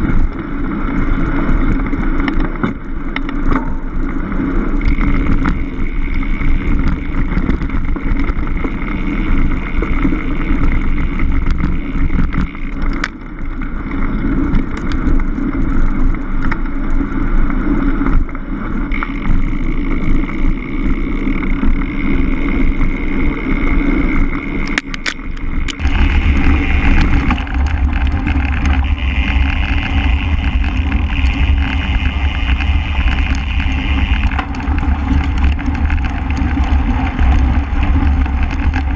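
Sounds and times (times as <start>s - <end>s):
bike rattles and knocks: 0.0s - 38.9s
bike tyres rumbling on dirt: 0.0s - 38.9s
wind buffeting microphone: 25.5s - 38.9s.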